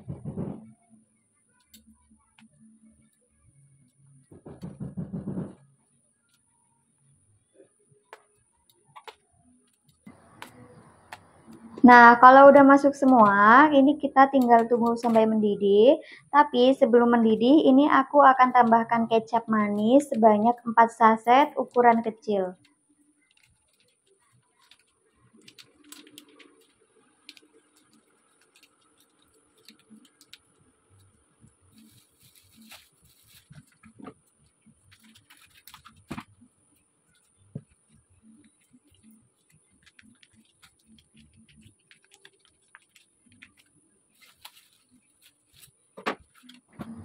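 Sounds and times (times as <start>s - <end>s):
plastic sachets rustling: 23.2s - 31.1s, 31.7s - 36.3s, 38.6s - 46.8s.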